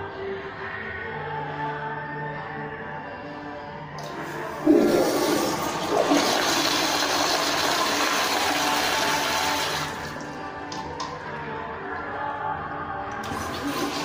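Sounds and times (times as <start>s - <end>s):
toilet flushing: 4.0s - 10.3s, 13.2s - 14.0s.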